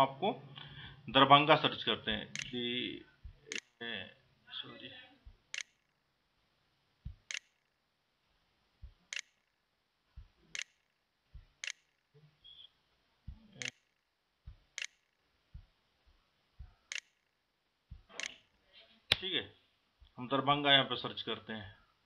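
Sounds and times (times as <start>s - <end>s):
computer mouse clicking: 2.3s - 2.6s, 3.5s - 3.7s, 5.5s - 6.0s, 7.1s - 7.7s, 9.0s - 9.5s, 10.4s - 12.0s, 13.6s - 13.9s, 14.6s - 15.2s, 16.8s - 17.3s, 18.0s - 18.5s.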